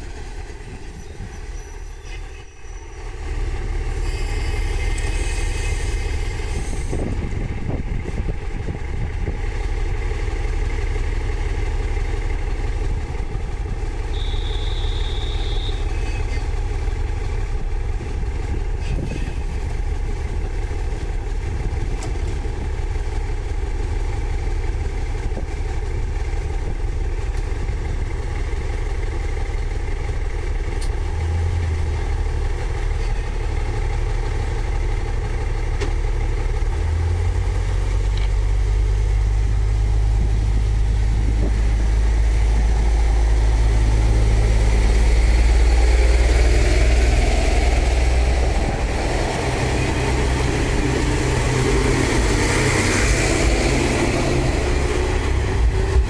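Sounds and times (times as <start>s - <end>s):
train cars running past: 0.0s - 37.0s, 38.7s - 56.0s
diesel railcar engines: 0.0s - 56.0s.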